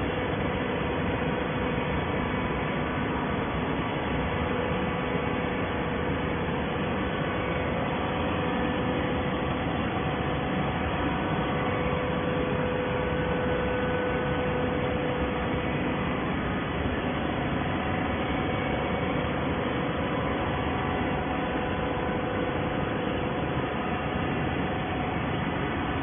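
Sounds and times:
baler machine humming: 0:00.0 - 0:26.0.

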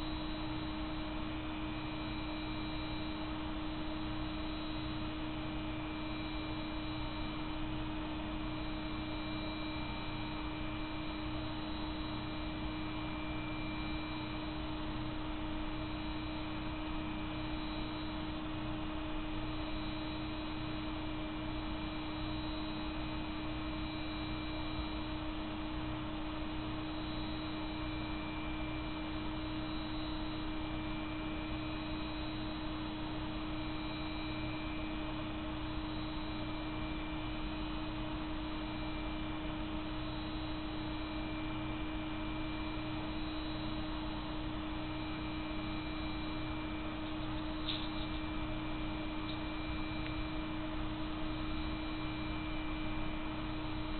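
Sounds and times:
electrical hum: 0:00.0 - 0:53.9.

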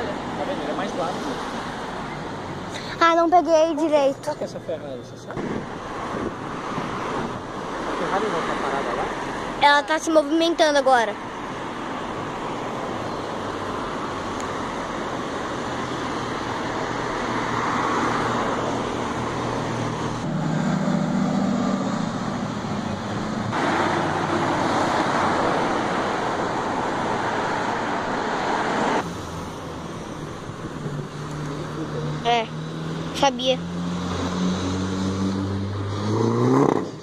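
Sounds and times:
road traffic passing: 0:00.0 - 0:37.0
sports car engine passing by: 0:15.6 - 0:37.0.

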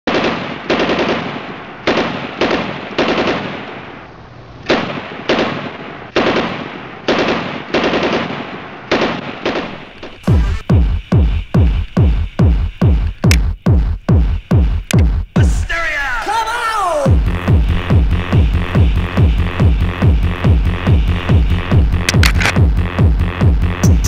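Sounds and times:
electronic kick-drum beat: 0:10.2 - 0:15.7, 0:17.1 - 0:24.0.

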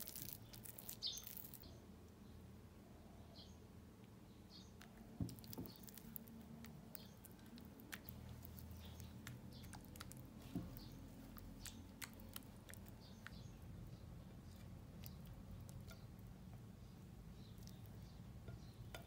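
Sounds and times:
faint bird chirps: 0:00.1 - 0:16.2
spatula squishing batter: 0:04.8 - 0:19.0.

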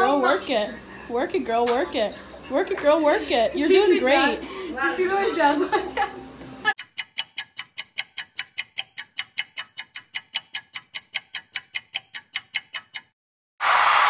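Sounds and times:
fast clock ticking: 0:06.8 - 0:13.2.

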